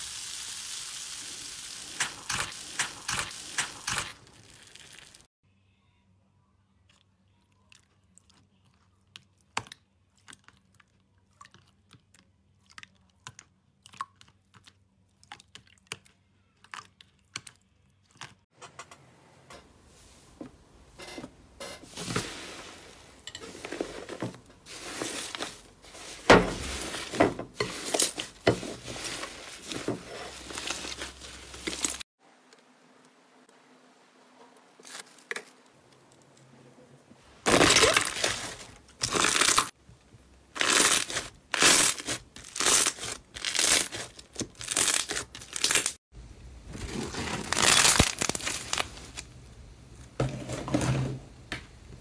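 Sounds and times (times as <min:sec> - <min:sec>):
slime crackling and crunching: 0:40.5 - 0:46.0, 0:46.8 - 0:49.3.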